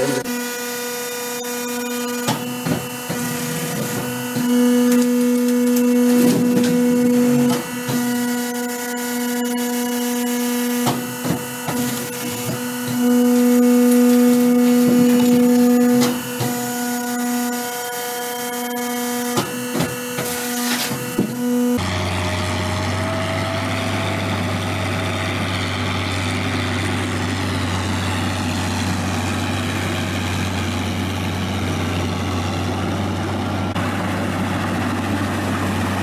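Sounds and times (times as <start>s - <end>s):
peeling machine humming: 0.0s - 36.0s.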